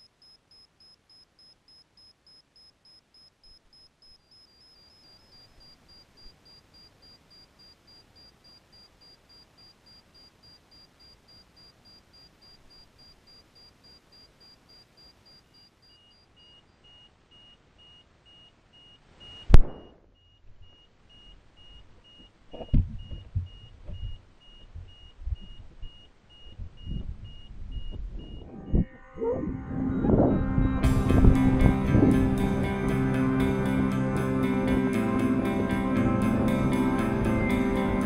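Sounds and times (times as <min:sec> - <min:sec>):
faint electronic beeping: 0:00.0 - 0:31.8
balloon bursting bang: 0:19.5 - 0:20.1.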